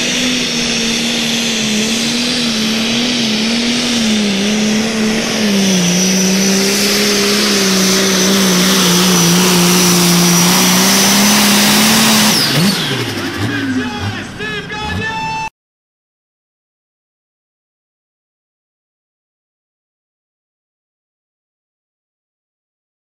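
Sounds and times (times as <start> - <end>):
high steady whine: 0.0 - 15.4
diesel engine under load: 0.0 - 15.5.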